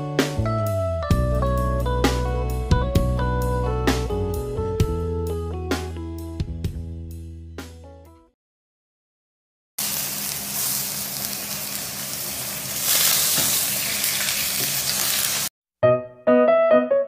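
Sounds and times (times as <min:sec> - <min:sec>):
food sizzling in a pan: 0:09.8 - 0:15.5.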